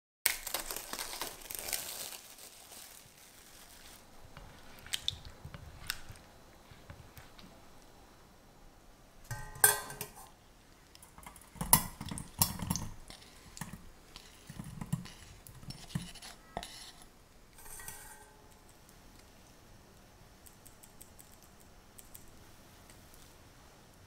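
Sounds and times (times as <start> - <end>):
glass clinking against metal: 9.3 - 10.1, 17.6 - 18.5.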